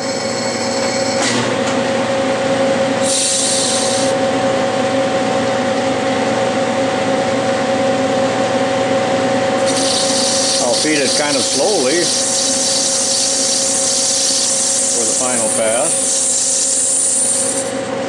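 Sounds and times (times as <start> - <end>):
metal lathe whining: 0.0 - 1.3, 3.0 - 4.2, 9.5 - 18.0
cutting tool hissing on brass: 3.0 - 4.1, 9.6 - 17.7.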